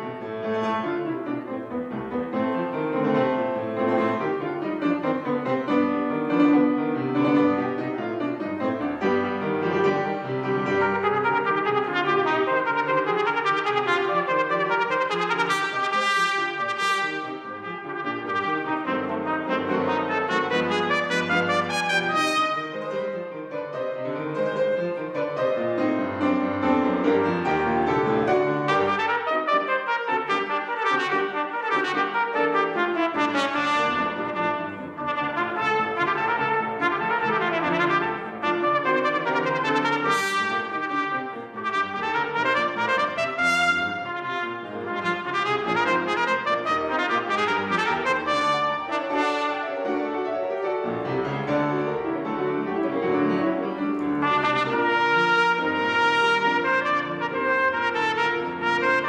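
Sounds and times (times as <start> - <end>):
piano accompaniment: 0.0 - 59.0
solo trumpet rapid runs: 10.6 - 23.0, 28.7 - 49.9, 54.2 - 59.0.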